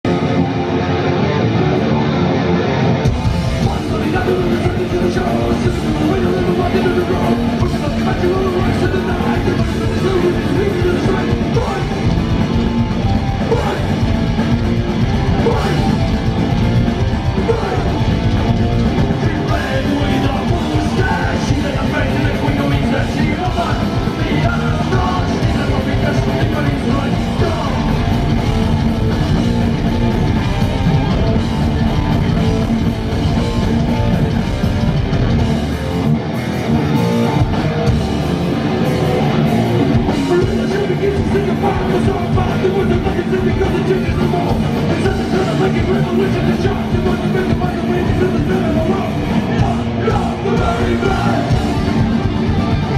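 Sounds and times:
distorted electric guitars: 0.0s - 52.9s
drum kit: 3.0s - 52.9s
person singing: 3.6s - 12.2s, 13.4s - 14.1s, 15.3s - 16.1s, 17.3s - 18.1s, 19.0s - 28.3s, 39.9s - 52.0s.

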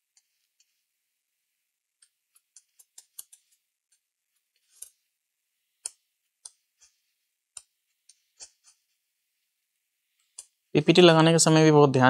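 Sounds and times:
small tool scraping: 2.0s - 5.1s, 5.8s - 9.0s.

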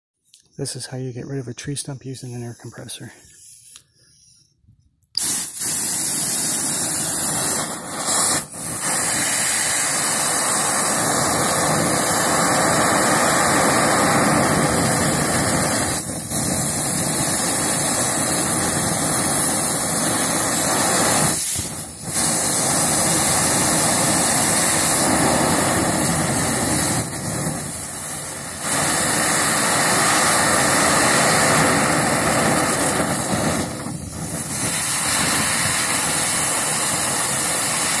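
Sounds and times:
compressed air hissing: 1.6s - 38.0s.

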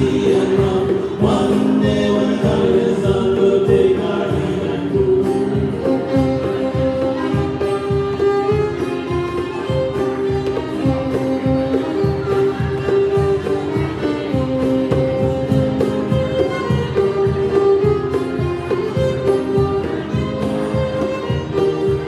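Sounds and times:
voices singing along: 0.0s - 5.8s
fiddle: 0.0s - 22.0s
hand drum beat: 0.0s - 22.0s
strummed acoustic guitar: 0.0s - 22.0s.

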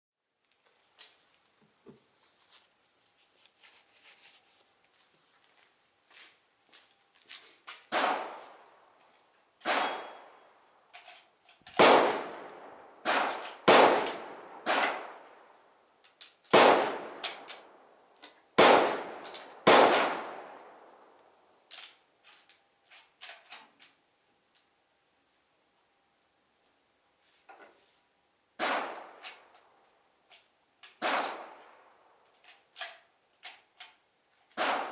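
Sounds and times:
rifle shots echoing: 7.9s - 8.7s, 9.6s - 10.4s, 11.8s - 15.5s, 16.5s - 17.8s, 18.6s - 21.1s, 28.6s - 29.4s, 31.0s - 31.9s, 34.6s - 34.9s
rifle bolt clicks and clanks: 10.9s - 12.0s, 13.2s - 15.0s, 17.2s - 18.4s, 19.1s - 20.3s, 21.7s - 24.7s, 28.7s - 29.7s, 30.3s - 34.9s.

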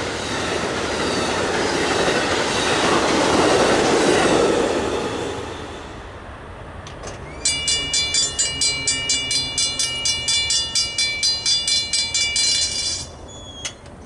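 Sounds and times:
railroad crossing bell ringing: 7.2s - 14.0s.

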